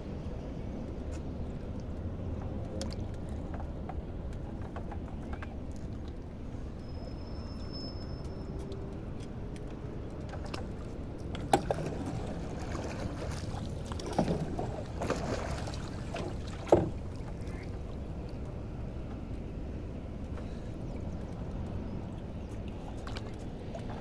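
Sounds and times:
oar splashing in water: 0:10.4 - 0:18.0
oar knocking against boat: 0:16.1 - 0:17.5.

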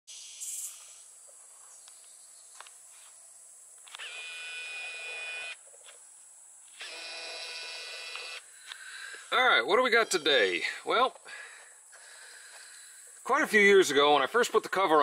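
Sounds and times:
drawn-out pitched calls: 0:04.0 - 0:05.6.

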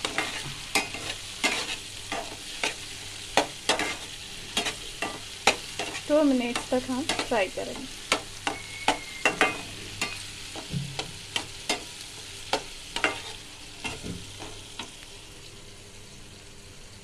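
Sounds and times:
spatula scraping a metal pan: 0:00.0 - 0:02.8, 0:03.4 - 0:07.4, 0:08.1 - 0:11.9, 0:12.6 - 0:14.6
onions sizzling in oil: 0:00.0 - 0:17.0.

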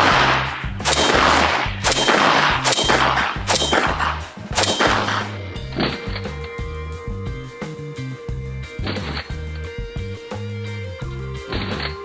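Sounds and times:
rifle shots with echo: 0:00.0 - 0:05.4
background music: 0:00.0 - 0:12.0.

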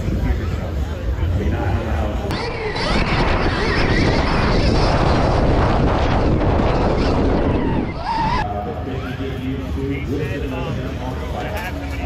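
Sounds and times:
wind buffeting microphone: 0:02.3 - 0:08.4.

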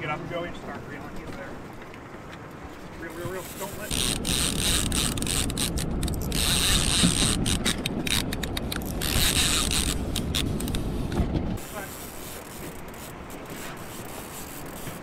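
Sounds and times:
fishing reel whirring and clicking: 0:03.4 - 0:15.0.

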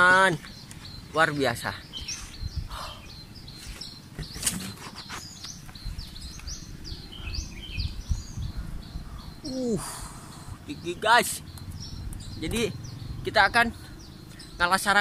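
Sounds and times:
small birds chirping: 0:00.0 - 0:15.0
man's short vocal sound: 0:09.4 - 0:10.2.

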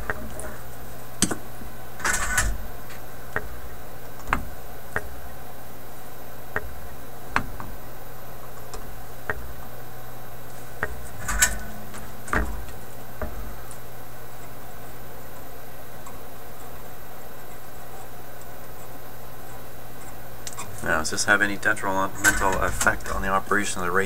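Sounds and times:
steady low hum: 0:00.0 - 0:24.0
small clicks and ticks: 0:10.4 - 0:23.7.

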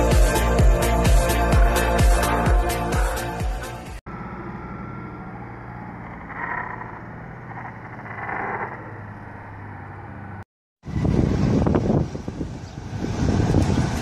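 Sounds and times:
motorcycle engine revving: 0:04.0 - 0:10.4.

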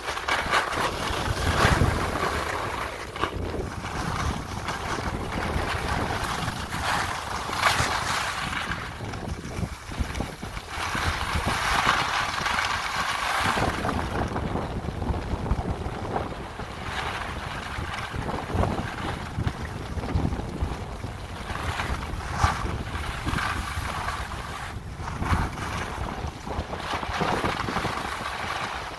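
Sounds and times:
skis sliding on snow: 0:00.0 - 0:28.9
wind buffeting microphone: 0:00.0 - 0:28.9.

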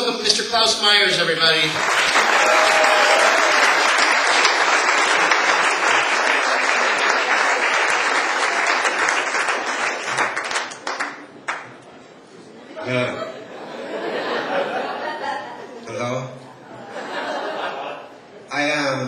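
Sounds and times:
audience applauding: 0:01.6 - 0:11.8.

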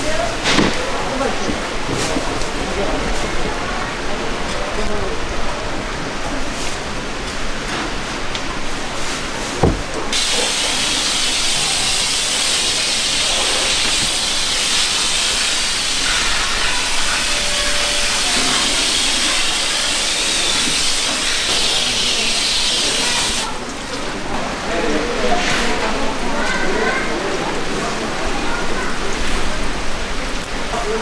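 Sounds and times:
hose nozzle spraying water: 0:10.1 - 0:23.5.

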